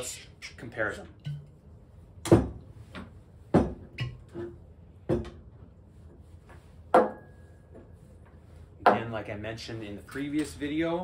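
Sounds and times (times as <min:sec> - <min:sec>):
glass ringing: 0:07.0 - 0:07.5.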